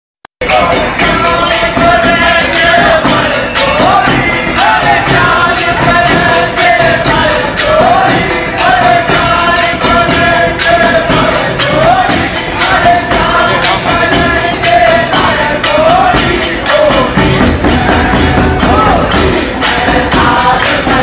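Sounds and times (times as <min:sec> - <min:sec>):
frame drums beat: 0:00.4 - 0:21.0
group singing folk song: 0:00.4 - 0:21.0
jingling percussion: 0:00.4 - 0:21.0.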